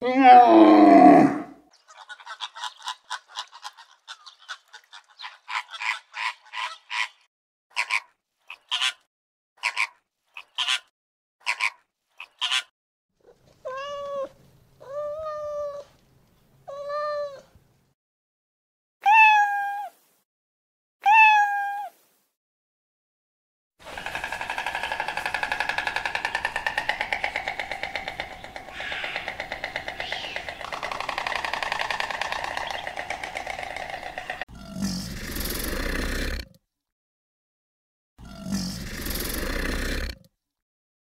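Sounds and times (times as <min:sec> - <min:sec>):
meow-like animal calls: 0:00.0 - 0:01.6, 0:13.6 - 0:15.9, 0:16.7 - 0:17.5, 0:19.0 - 0:20.0, 0:21.0 - 0:22.0, 0:28.7 - 0:30.5
animal chirps: 0:28.0 - 0:34.7.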